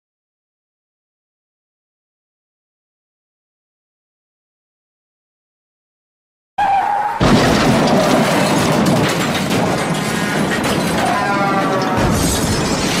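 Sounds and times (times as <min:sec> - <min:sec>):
crashing rumbling noise: 0:07.2 - 0:13.0.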